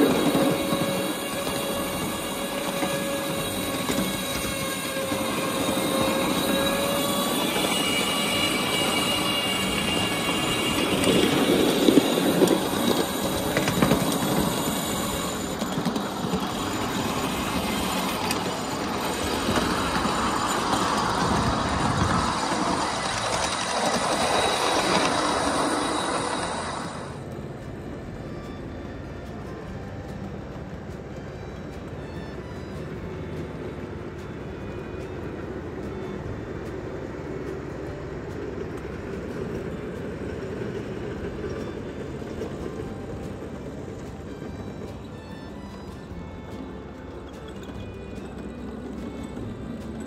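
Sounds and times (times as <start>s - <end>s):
thin squealing tones: 0.0s - 50.0s
train wheels rumbling on rails: 0.0s - 50.0s.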